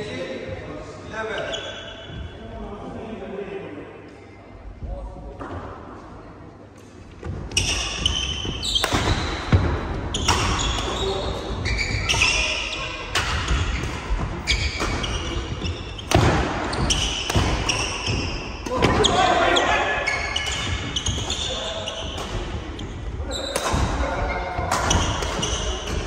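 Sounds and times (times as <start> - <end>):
shoes squeaking on wooden floor: 7.2 - 26.0
rackets striking shuttlecock: 16.0 - 18.9.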